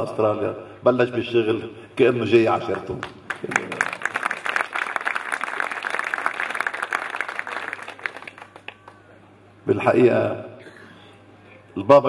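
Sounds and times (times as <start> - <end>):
audience applauding: 2.7 - 9.1.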